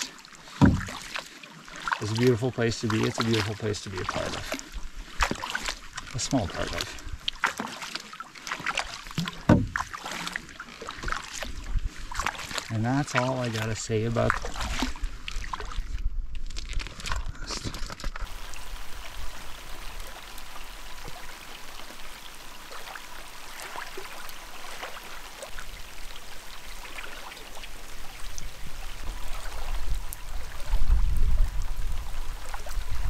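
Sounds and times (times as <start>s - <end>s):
rain falling on a lake: 0.0s - 15.4s, 16.5s - 33.0s
wavelets lapping at shore: 0.0s - 16.0s, 18.2s - 33.0s.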